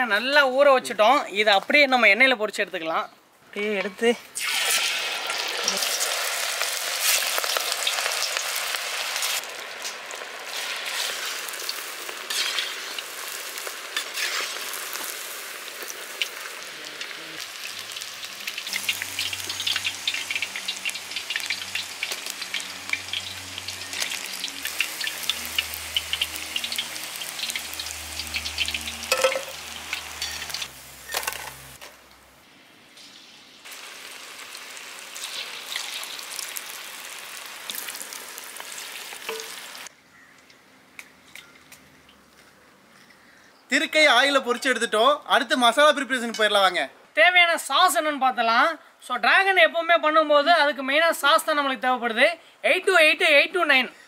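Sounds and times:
food deep-frying in hot oil: 4.4s - 39.9s.

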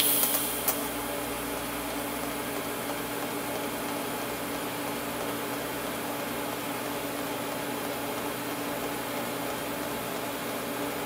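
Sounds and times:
welding arc hissing buzz: 0.0s - 2.6s.

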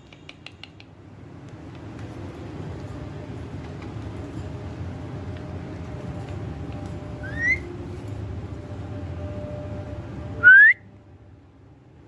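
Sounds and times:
low background hum: 0.0s - 12.0s
parakeet whistling: 7.2s - 7.7s.

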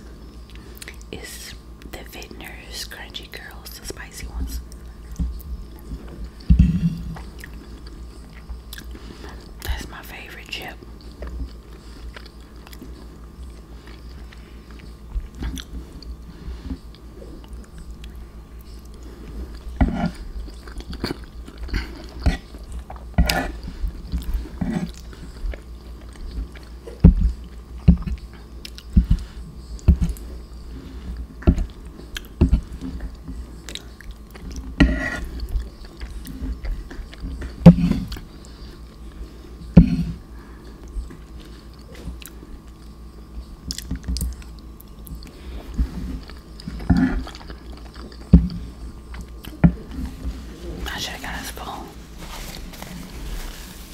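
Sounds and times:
person chewing food: 0.3s - 1.1s, 4.6s - 9.8s, 10.9s - 50.8s
wet mouth clicks and smacks: 43.7s - 45.3s.

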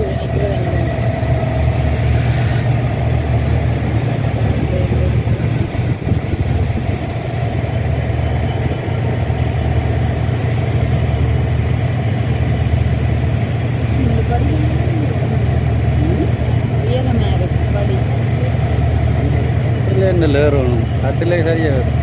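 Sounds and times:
diesel locomotive engine rumbling: 0.0s - 22.0s
brief hiss: 1.8s - 2.8s.

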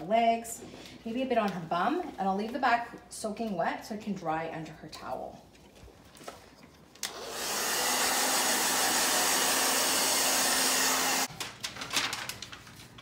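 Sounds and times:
hair dryer blowing: 7.0s - 11.3s.

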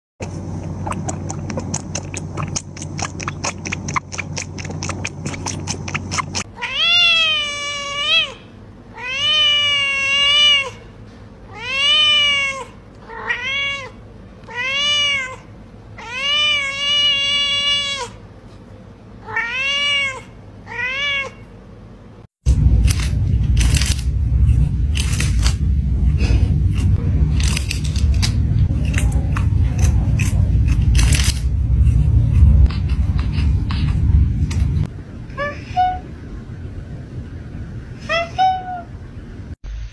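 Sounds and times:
low hum: 0.2s - 6.6s, 21.6s - 39.9s
cat meowing: 5.9s - 10.8s, 11.5s - 18.2s, 19.2s - 21.4s.

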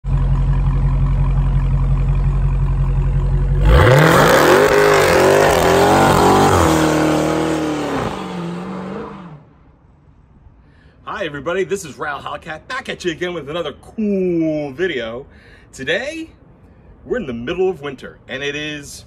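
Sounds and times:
car engine idling and revving: 0.0s - 9.7s.

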